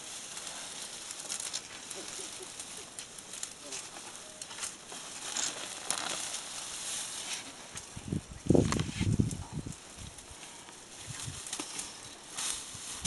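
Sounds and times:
vegetation snapping and crunching: 0.0s - 7.9s, 11.2s - 13.0s
rustling of bushes and grass: 0.0s - 13.0s.

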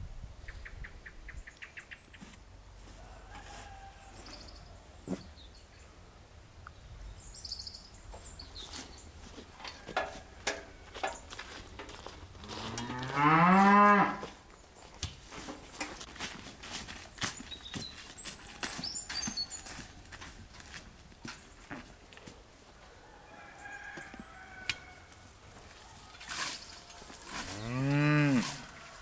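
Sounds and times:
cow mooing: 12.4s - 14.2s, 27.5s - 28.6s.

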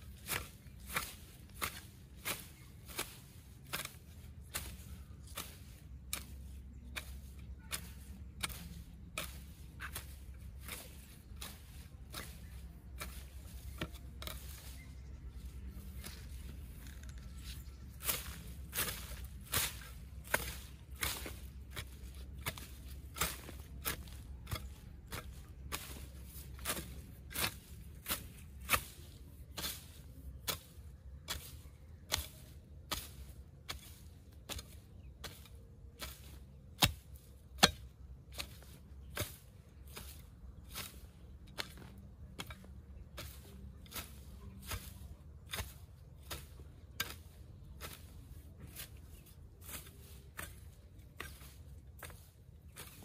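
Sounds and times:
hand tool striking: 30.5s - 48.9s, 49.6s - 53.0s.

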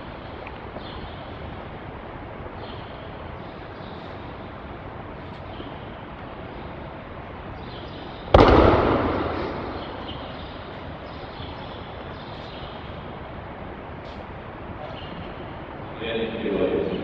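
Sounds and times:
body landing on mat: 8.4s - 10.2s.

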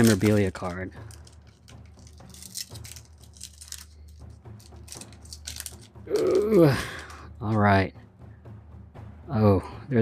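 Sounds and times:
trading cards flipped through: 0.0s - 7.6s.

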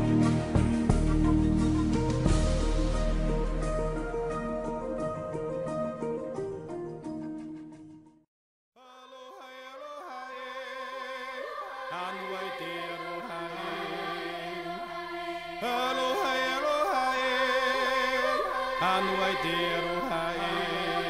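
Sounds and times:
chanted vocals over held low note: 11.9s - 21.0s.

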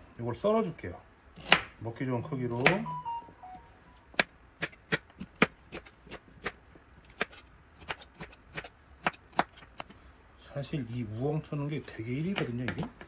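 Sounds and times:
knife chopping on wooden board: 1.4s - 1.8s, 4.1s - 9.9s.

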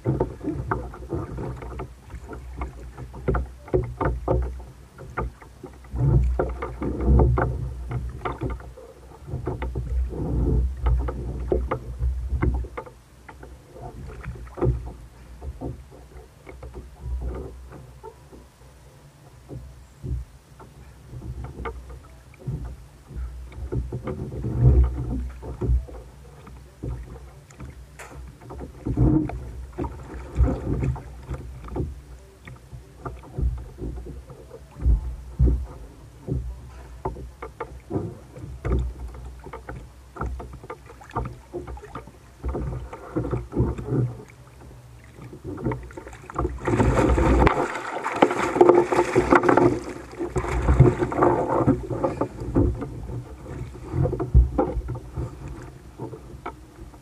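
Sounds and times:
water slapping against plastic hull: 0.0s - 18.5s, 19.4s - 57.0s
knocks on kayak hull: 45.3s - 56.6s
loud splashing: 46.5s - 51.2s.

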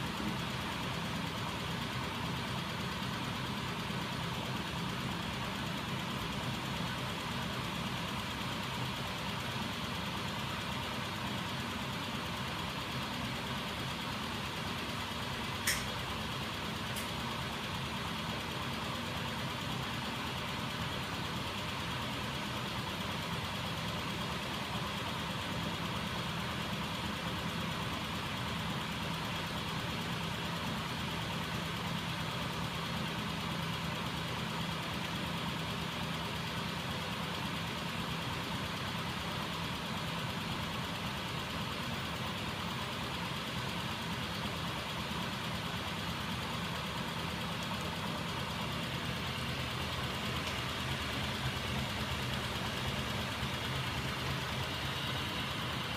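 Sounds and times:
sharp click: 15.6s - 16.0s.

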